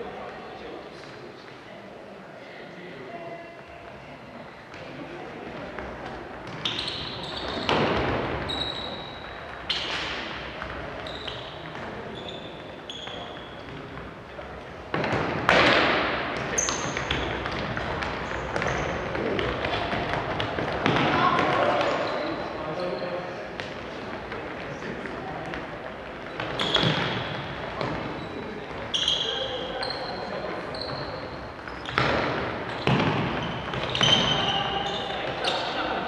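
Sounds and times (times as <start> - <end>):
shoes squeaking on hardwood: 26.1 - 35.8.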